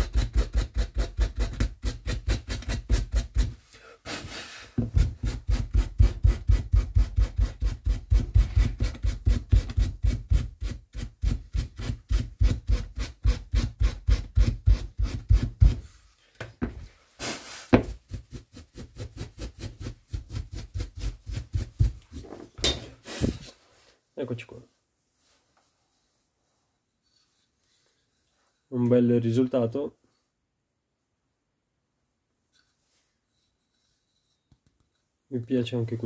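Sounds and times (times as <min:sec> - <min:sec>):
scrape on wood: 0:00.0 - 0:16.0, 0:16.7 - 0:23.7, 0:27.0 - 0:28.7
hand tool strokes on wood: 0:00.0 - 0:16.1, 0:23.0 - 0:23.8.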